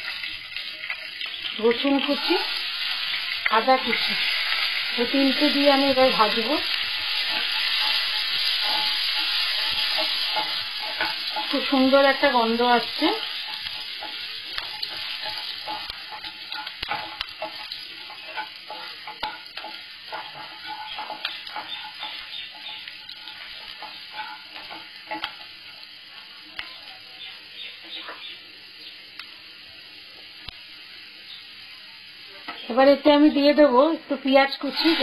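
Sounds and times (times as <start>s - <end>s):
garlic sizzling in hot oil: 0.0s - 35.0s
wooden spatula knocking pan: 7.2s - 25.5s.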